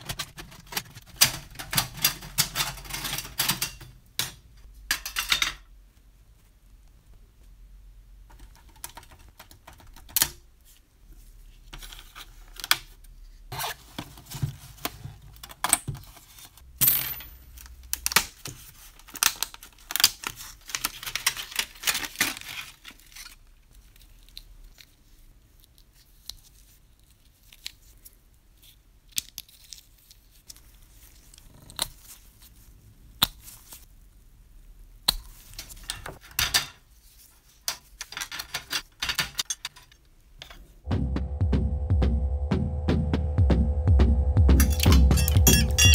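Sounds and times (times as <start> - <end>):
plastic sheet crackling and rustling: 18.3 - 25.3.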